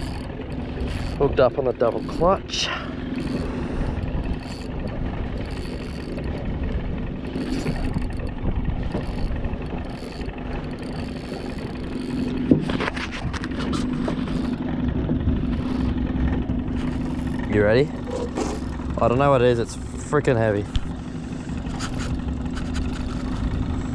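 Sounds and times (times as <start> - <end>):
boat motor humming: 0.0 - 23.9
water noise: 0.0 - 23.9
wind: 0.0 - 23.9.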